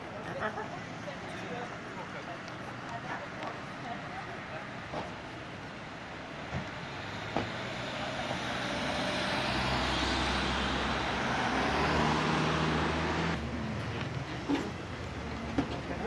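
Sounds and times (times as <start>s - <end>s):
vehicle engine hum: 0.0s - 16.0s.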